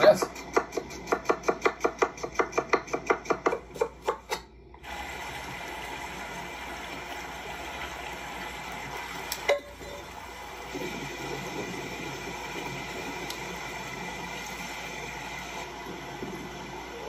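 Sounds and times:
knife chopping on a cutting board: 0.2 - 4.4.

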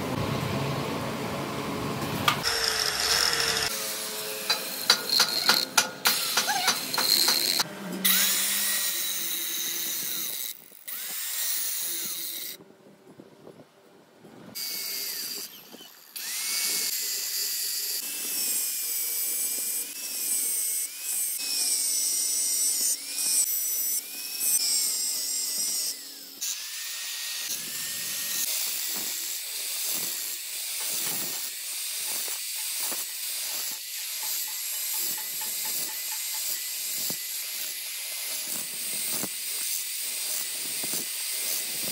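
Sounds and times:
angle grinder grinding steel: 2.3 - 12.6, 14.6 - 41.9.

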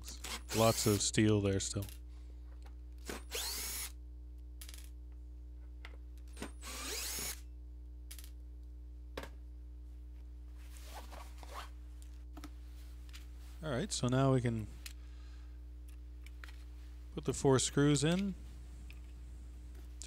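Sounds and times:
steady low hum: 0.0 - 20.0
electric screwdriver whirring: 3.1 - 3.9, 6.6 - 7.4.

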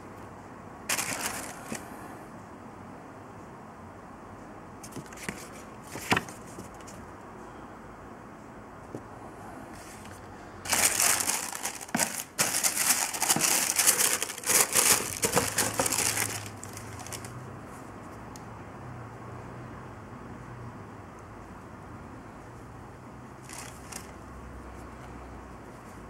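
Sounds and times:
tissue paper crinkling: 0.9 - 1.8, 10.6 - 17.3, 23.5 - 24.1.

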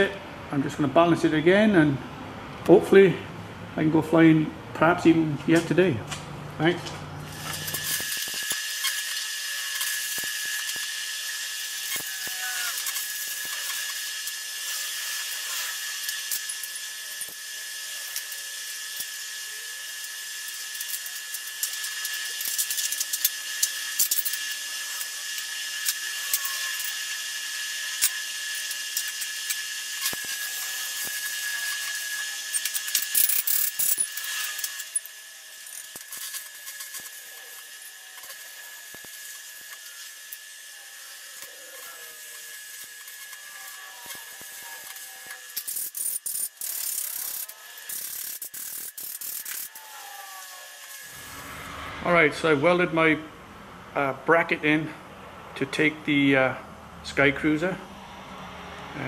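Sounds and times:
constant high whine: 0.0 - 59.0
arc welding crackling hiss: 7.2 - 51.5.

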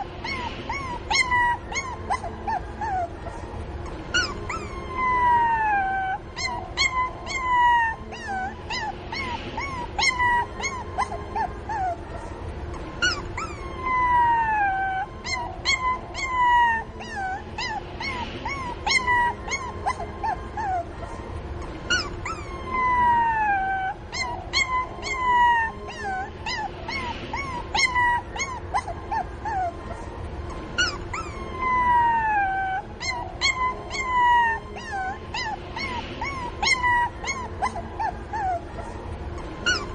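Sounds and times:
puppy yelping: 0.0 - 12.1, 12.7 - 20.9, 21.6 - 29.9, 30.5 - 38.8, 39.4 - 39.9
puppy whining: 0.0 - 39.9.

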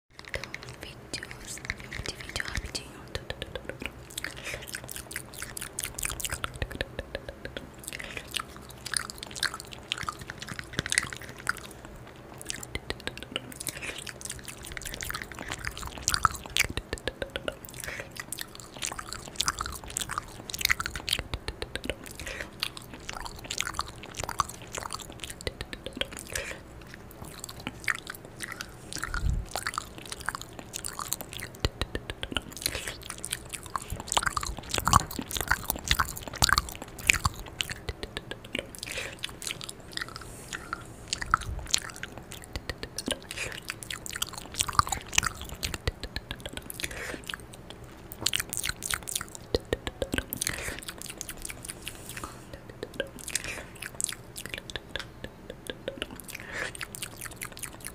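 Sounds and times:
wet mouth clicks and smacks: 0.2 - 57.9.

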